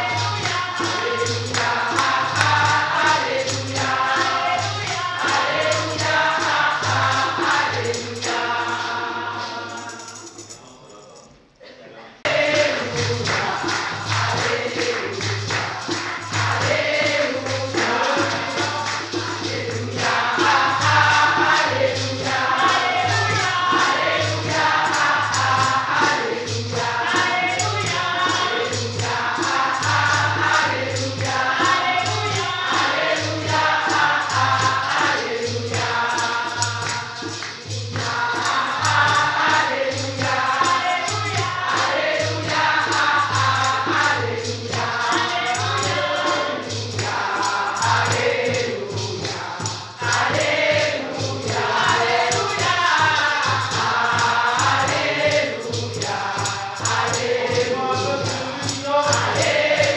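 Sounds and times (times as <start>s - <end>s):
tambourine: 0.0s - 11.4s, 12.3s - 59.9s
congregation singing: 0.0s - 59.9s.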